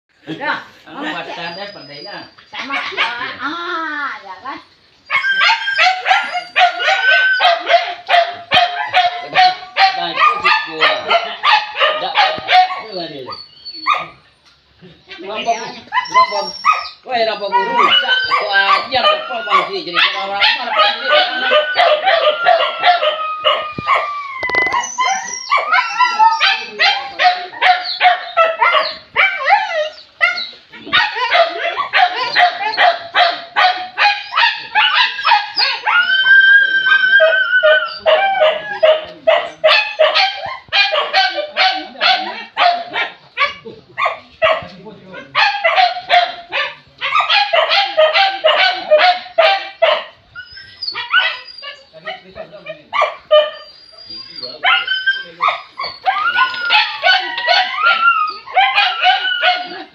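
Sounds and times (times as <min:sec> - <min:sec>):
dogs barking and yelping: 0:00.9 - 0:03.5, 0:05.0 - 0:59.9.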